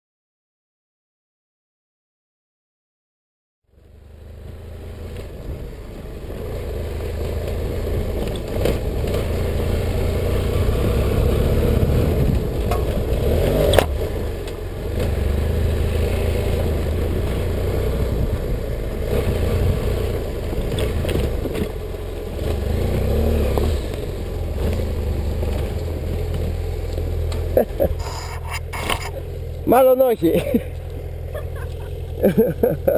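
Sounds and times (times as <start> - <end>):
motorcycle engine running: 3.7 - 32.9
knocks and scrapes from track: 12.2 - 14.6, 27.3 - 29.2.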